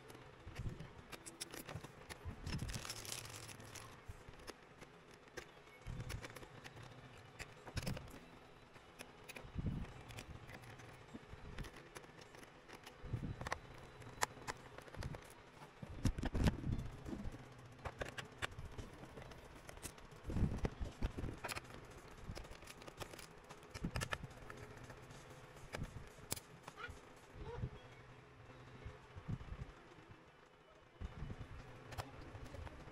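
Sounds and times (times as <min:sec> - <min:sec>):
screwdriver clicking on screws: 0:01.1 - 0:08.2, 0:11.6 - 0:15.3.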